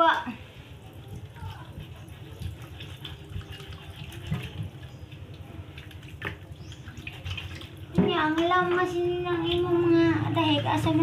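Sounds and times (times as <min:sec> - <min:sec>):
water running in sink: 0:00.8 - 0:11.0.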